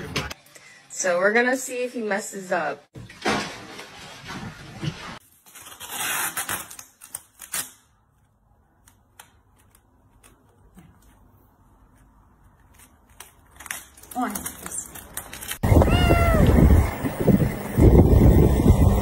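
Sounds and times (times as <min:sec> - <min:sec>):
packing tape pulled off roll: 0:05.2 - 0:08.0, 0:12.6 - 0:15.6.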